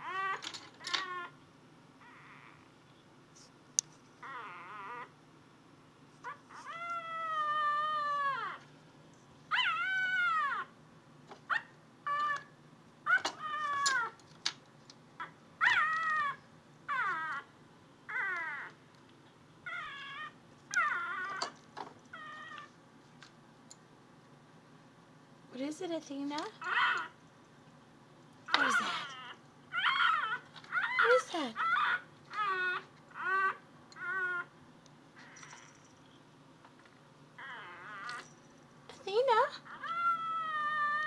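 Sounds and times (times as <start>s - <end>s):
puppy whining: 0.0s - 1.4s, 2.0s - 2.8s, 4.2s - 5.2s, 6.2s - 8.7s, 9.5s - 10.8s, 11.5s - 14.2s, 15.2s - 17.5s, 18.1s - 18.8s, 19.6s - 22.8s, 26.5s - 27.2s, 28.5s - 36.0s, 37.4s - 38.4s, 39.4s - 41.0s.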